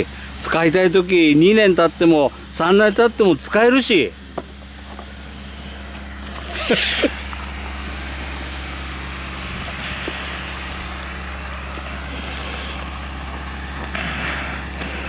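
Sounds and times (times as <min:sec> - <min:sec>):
low motor rumble: 0:00.0 - 0:15.0.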